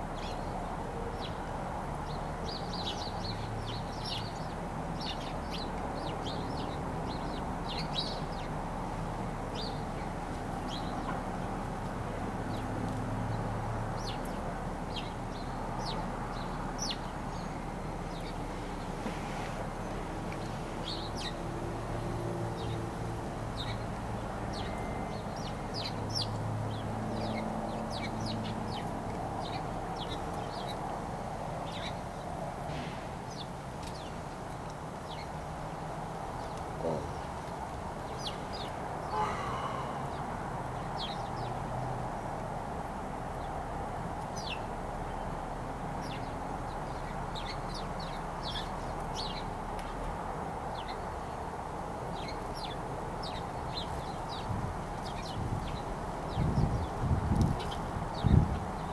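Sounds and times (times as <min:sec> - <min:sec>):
birds chirping: 0:00.0 - 0:41.8, 0:44.2 - 0:50.0, 0:50.6 - 0:58.9
loud bird call: 0:38.2 - 0:41.3.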